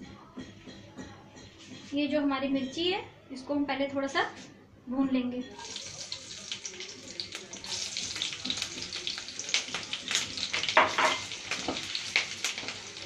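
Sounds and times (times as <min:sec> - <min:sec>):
chillies sizzling in hot oil: 0:05.5 - 0:13.0.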